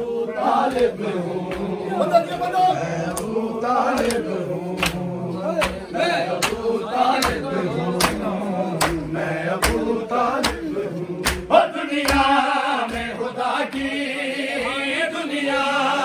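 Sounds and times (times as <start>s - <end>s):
men chanting in unison: 0.0s - 16.0s
hands slapping chests: 0.6s - 1.8s, 3.1s - 13.9s.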